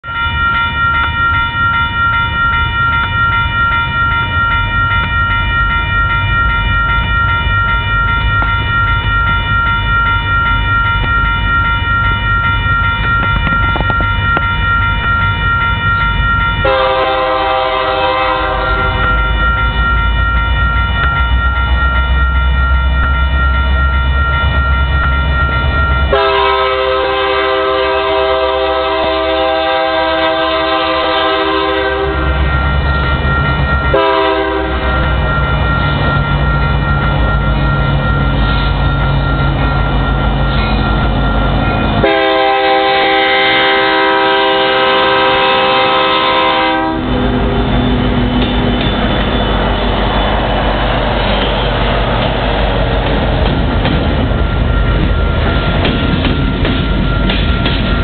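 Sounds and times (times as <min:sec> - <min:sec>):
crossing bell ringing: 0:00.0 - 0:58.0
low train rumble: 0:00.0 - 0:58.0
locomotive horn blasts: 0:16.6 - 0:19.2, 0:26.1 - 0:32.4, 0:33.9 - 0:35.0, 0:42.0 - 0:47.3.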